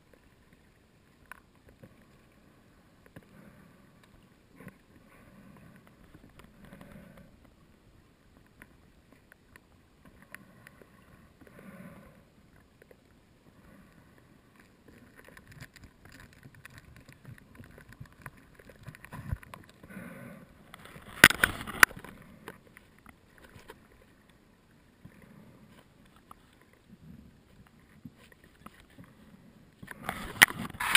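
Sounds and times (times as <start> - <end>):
faint clicks: 0.0 - 7.6, 8.2 - 20.0
diver breathing through regulator: 10.4 - 12.3, 19.8 - 20.7.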